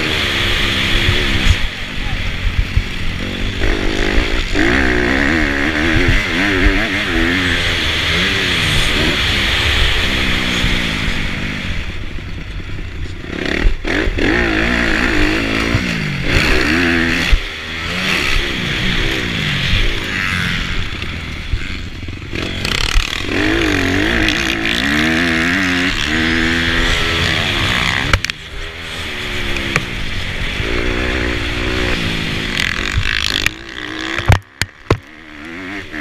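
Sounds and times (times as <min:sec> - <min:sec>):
motorcycle engine revving: 0:00.0 - 0:36.0
sharp knocks: 0:32.6 - 0:35.1.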